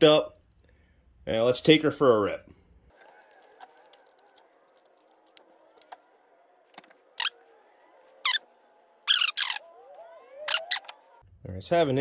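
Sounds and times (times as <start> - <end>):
plastic clicks and rattling: 3.0 - 6.0.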